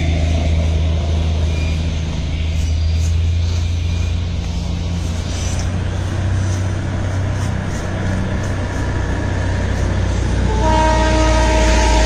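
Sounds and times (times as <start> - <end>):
heavy vehicle engine rumbling: 0.0 - 12.0
multi-tone horn blowing: 10.4 - 12.0.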